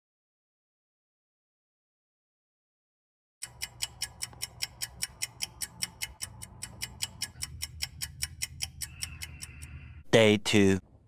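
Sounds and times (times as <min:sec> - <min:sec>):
fast clock ticking: 0:03.4 - 0:10.0.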